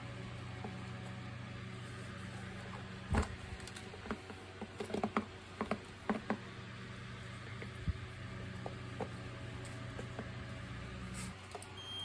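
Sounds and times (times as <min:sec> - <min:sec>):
plastic parts knocking: 0:04.0 - 0:06.4.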